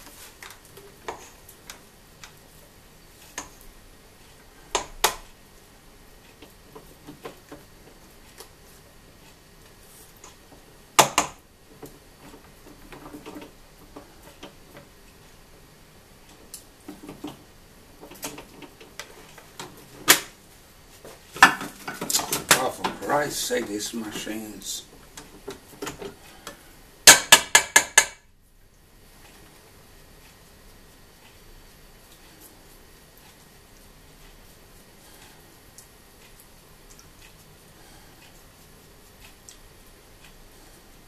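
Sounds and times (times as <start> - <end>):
spatula tapping metal bowl: 27.0 - 28.3.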